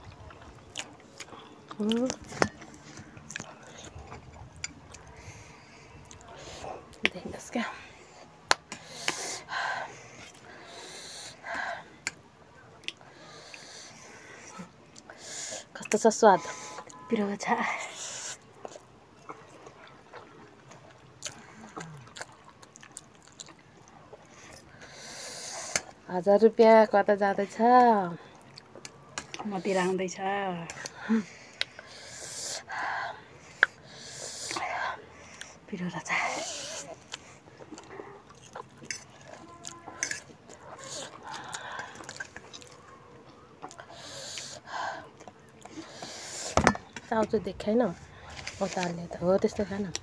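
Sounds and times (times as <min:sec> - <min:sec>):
noodles slurped and chewed: 0:00.0 - 0:26.0, 0:27.5 - 0:30.0, 0:30.6 - 0:47.3
small mouth clicks and smacks: 0:08.5 - 0:09.4, 0:12.8 - 0:13.7, 0:25.6 - 0:26.0, 0:34.4 - 0:34.6
hissy breath intakes: 0:13.1 - 0:15.7, 0:24.6 - 0:25.9, 0:31.1 - 0:35.6, 0:43.8 - 0:45.1, 0:45.7 - 0:46.8.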